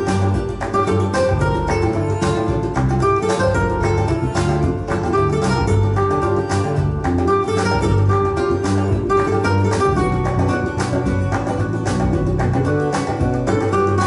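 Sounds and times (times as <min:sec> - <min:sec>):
plucked-string music with bass: 0:00.0 - 0:14.0.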